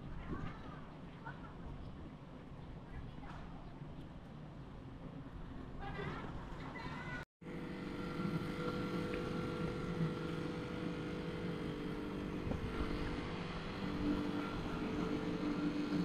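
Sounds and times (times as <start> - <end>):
steady machine hum: 7.4 - 16.0.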